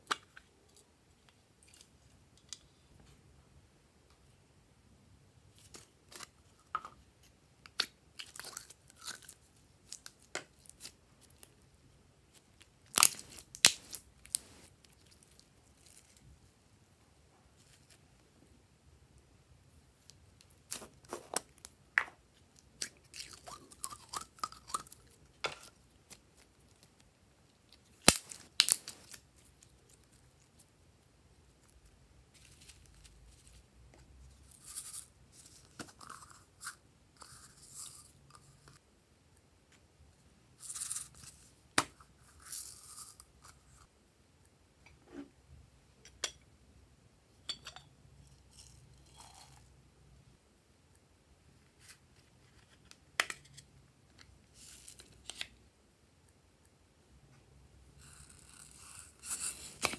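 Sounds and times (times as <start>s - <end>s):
contents rustling and scraping: 13.1s - 14.8s, 20.7s - 21.5s.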